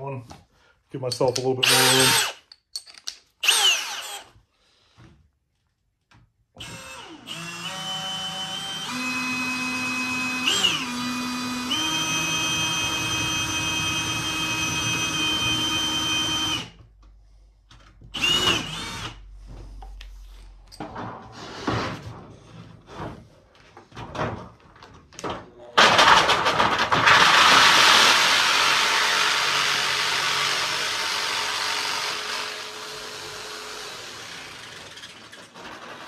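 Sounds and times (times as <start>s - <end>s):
drill motor whine: 3.4s - 4.3s, 6.6s - 16.7s, 18.2s - 19.2s.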